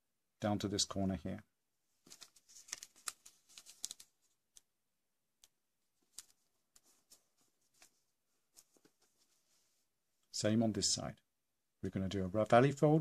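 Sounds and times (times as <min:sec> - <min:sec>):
paper crinkling while folded: 0:02.0 - 0:04.6, 0:06.0 - 0:09.6.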